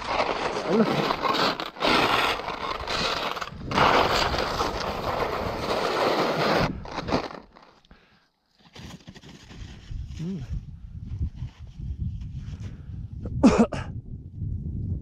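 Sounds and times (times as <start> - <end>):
skis rushing through powder snow: 0.0 - 7.6.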